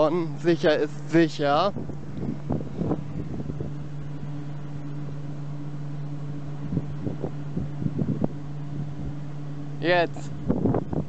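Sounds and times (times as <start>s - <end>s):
wind turbine hum: 0.0s - 11.0s
wind rumbling on microphone: 0.7s - 5.6s, 6.4s - 9.4s, 10.0s - 11.0s.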